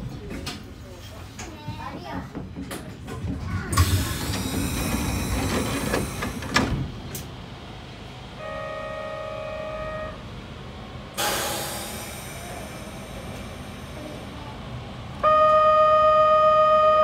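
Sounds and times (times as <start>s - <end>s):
train rattle and clicks: 0.0s - 7.7s, 10.8s - 15.2s
train horn: 8.4s - 10.2s, 15.2s - 17.0s.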